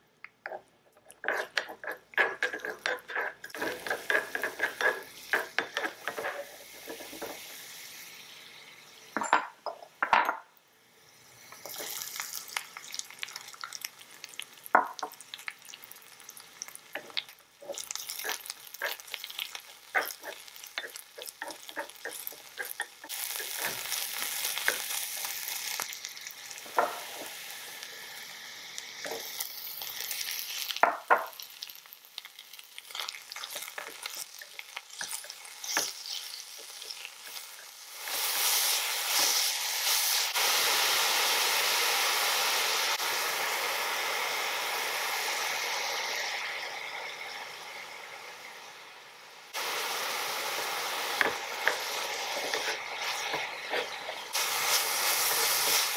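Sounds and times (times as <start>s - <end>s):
food sizzling in a wok: 0.0s - 55.9s
wooden spatula tapping metal: 1.2s - 6.3s.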